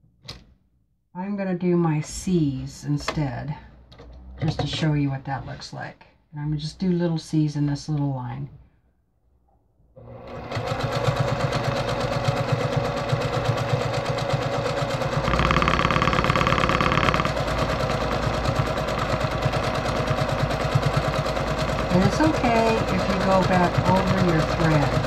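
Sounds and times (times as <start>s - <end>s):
sewing machine running fast: 10.2s - 25.0s.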